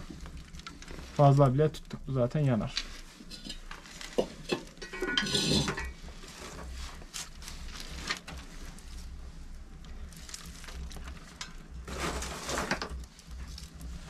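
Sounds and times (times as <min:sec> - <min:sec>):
metal scraping in firebox: 0:02.1 - 0:09.4, 0:10.0 - 0:14.0
metal clinking: 0:04.5 - 0:05.9.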